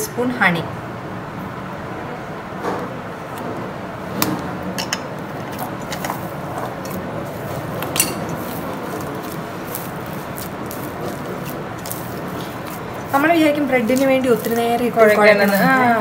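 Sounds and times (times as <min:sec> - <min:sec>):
dough squishing while kneaded: 0:05.2 - 0:16.0.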